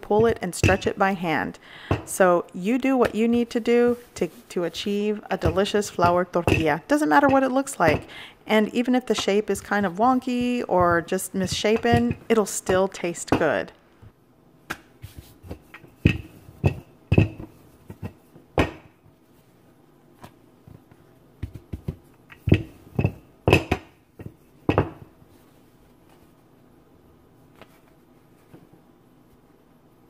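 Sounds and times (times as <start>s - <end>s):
rolling pin knocking on countertop: 0.1s - 0.9s, 5.3s - 8.1s, 9.1s - 13.6s, 15.1s - 18.9s, 21.4s - 25.1s.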